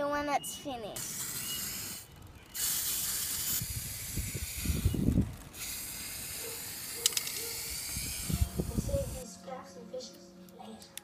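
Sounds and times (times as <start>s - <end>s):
spray paint can hissing: 0.9s - 9.2s.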